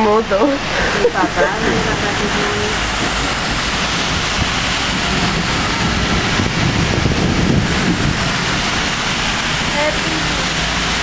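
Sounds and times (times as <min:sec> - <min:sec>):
heavy rain pouring: 0:00.0 - 0:11.0
splashing through floodwater: 0:00.0 - 0:11.0.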